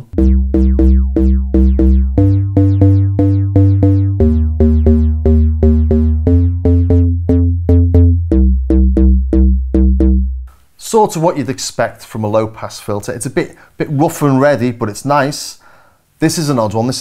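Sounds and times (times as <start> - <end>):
synthesizer bass note: 0.0 - 10.5
synthesizer playing short notes: 0.0 - 10.5.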